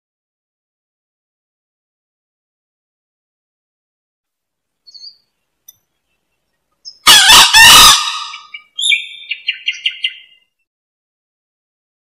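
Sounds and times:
rooster crowing: 0:07.0 - 0:08.5.

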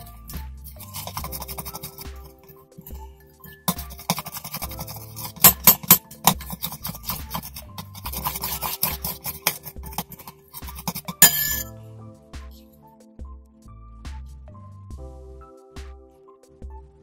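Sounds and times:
spoon stirring slime in glass bowl: 0:00.0 - 0:11.7
background music: 0:00.0 - 0:17.0
spoon clinking against glass: 0:03.5 - 0:07.4, 0:10.9 - 0:11.7.

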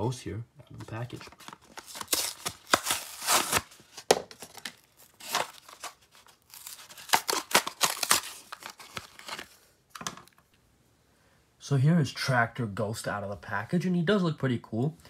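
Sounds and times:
plastic crinkling: 0:00.9 - 0:10.4
cardboard tearing: 0:01.2 - 0:09.5.

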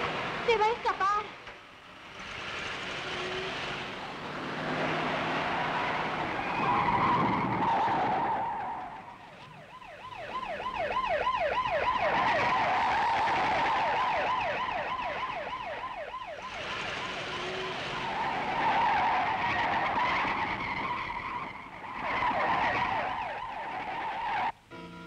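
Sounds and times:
car accelerating: 0:01.8 - 0:09.1, 0:15.6 - 0:24.5
high wavering siren wail: 0:05.4 - 0:25.0.

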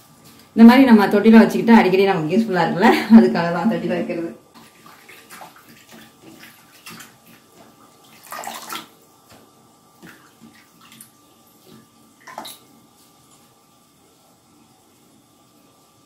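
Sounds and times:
water splashing and dripping: 0:04.5 - 0:12.7.

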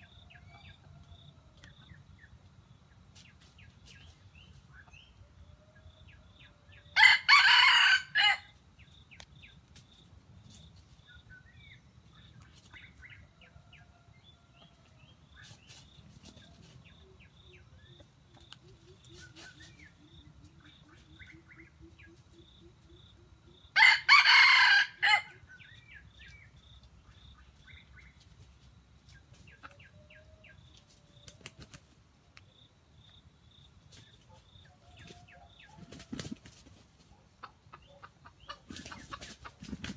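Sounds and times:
rooster crowing: 0:07.0 - 0:08.5, 0:23.8 - 0:25.4.

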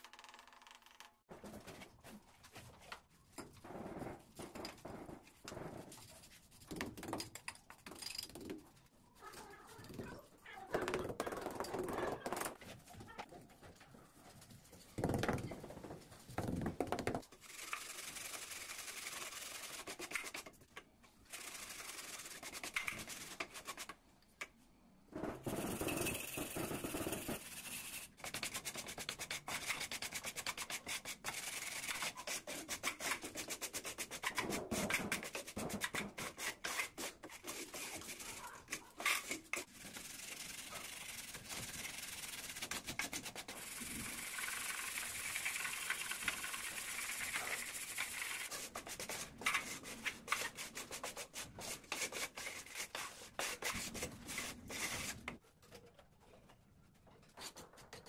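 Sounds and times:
trowel spreading mortar: 0:25.4 - 0:55.4.

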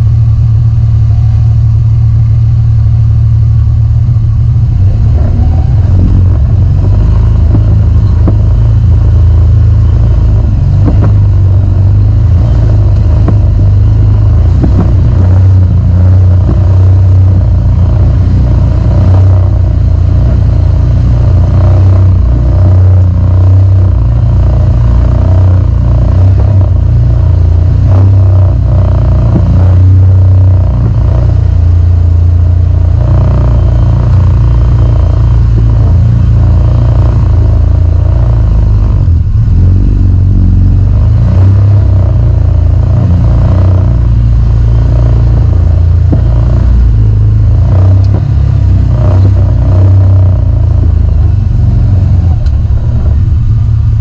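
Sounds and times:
vehicle engine running loud: 0:00.0 - 0:54.0.

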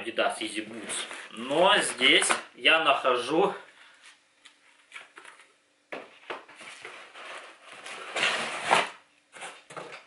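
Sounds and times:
cardboard and paper rustling: 0:06.2 - 0:10.0.

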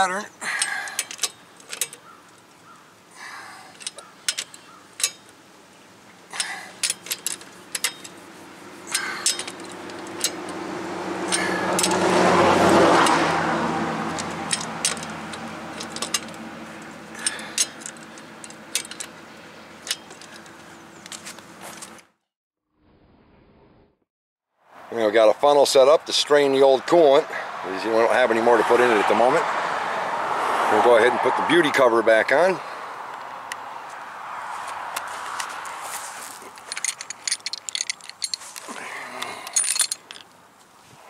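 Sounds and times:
torque wrench metallic clicks: 0:00.6 - 0:02.1, 0:03.8 - 0:05.3, 0:06.4 - 0:08.2, 0:08.8 - 0:10.6, 0:11.3 - 0:12.1, 0:14.0 - 0:19.2.

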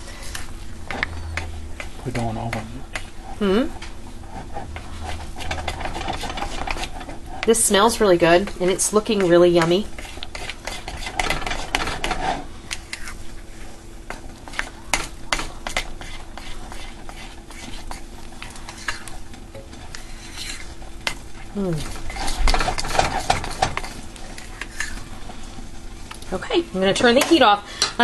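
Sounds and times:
utensil stirring sticky mix: 0:00.0 - 0:27.6.

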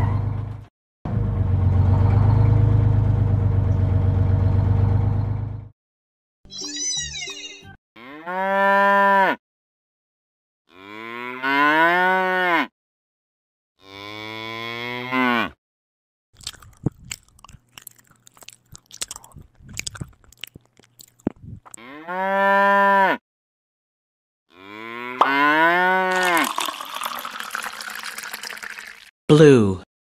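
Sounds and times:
cow mooing: 0:08.0 - 0:09.4, 0:10.7 - 0:12.7, 0:13.8 - 0:15.6, 0:21.8 - 0:23.2, 0:24.5 - 0:26.4
cow chewing crunchily: 0:16.4 - 0:21.8.

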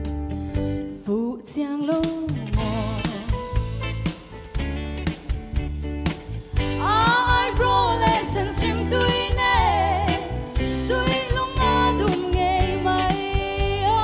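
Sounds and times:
band with drums and bass: 0:00.0 - 0:14.0
woman singing into a microphone: 0:00.9 - 0:03.4, 0:06.7 - 0:14.0.

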